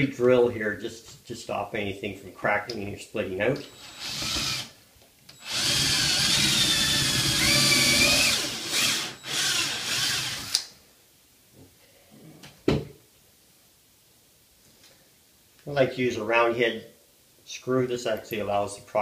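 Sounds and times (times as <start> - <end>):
cordless drill whining: 3.6 - 4.7, 5.4 - 10.6.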